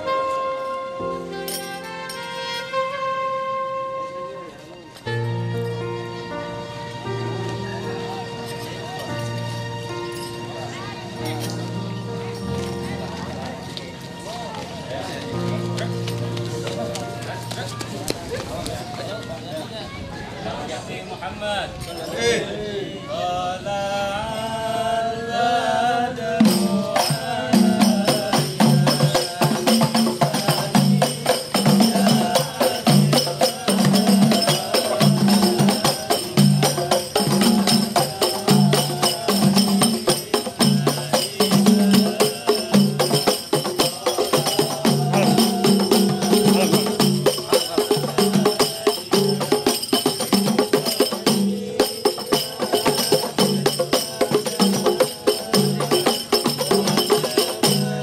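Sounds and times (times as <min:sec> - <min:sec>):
person chanting: 0:22.4 - 0:58.0
frame drums played by hand: 0:26.4 - 0:58.0.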